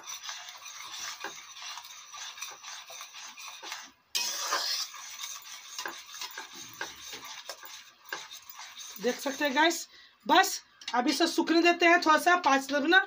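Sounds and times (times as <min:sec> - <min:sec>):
spoon scraping a metal pot: 0:00.0 - 0:09.9.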